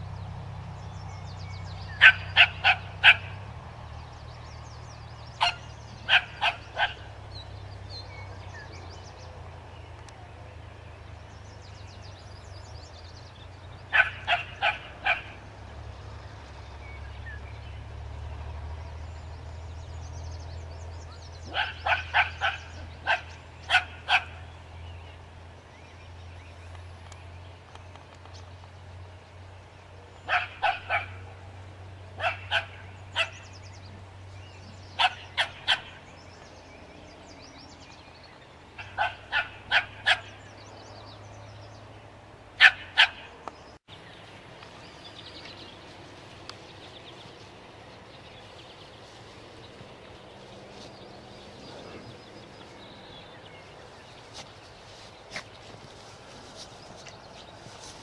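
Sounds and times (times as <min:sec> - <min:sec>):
small dog barking: 0:02.0 - 0:03.4, 0:05.4 - 0:07.1, 0:13.9 - 0:15.4, 0:21.5 - 0:24.4, 0:30.3 - 0:31.2, 0:32.2 - 0:33.4, 0:35.0 - 0:36.0, 0:38.8 - 0:40.4, 0:42.6 - 0:43.3.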